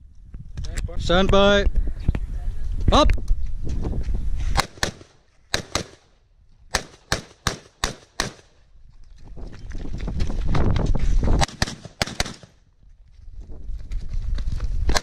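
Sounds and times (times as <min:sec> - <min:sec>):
rifle shots: 0:04.6 - 0:06.1, 0:06.7 - 0:08.6, 0:11.4 - 0:12.6.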